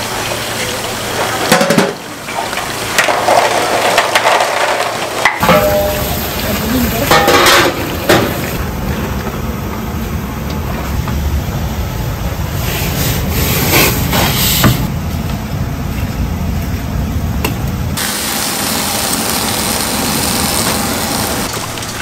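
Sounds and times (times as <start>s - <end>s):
metal pot clattering: 3.0s - 6.4s, 7.0s - 8.6s.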